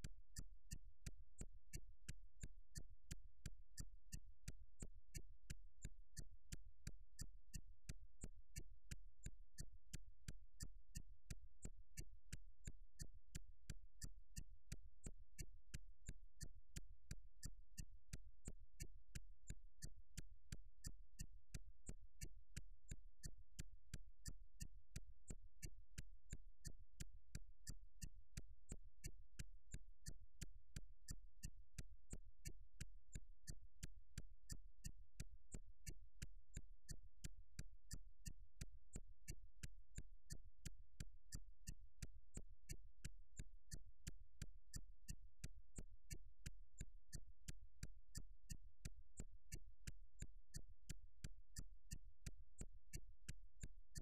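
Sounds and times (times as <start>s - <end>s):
evenly spaced sharp clicks: 0.0s - 54.0s.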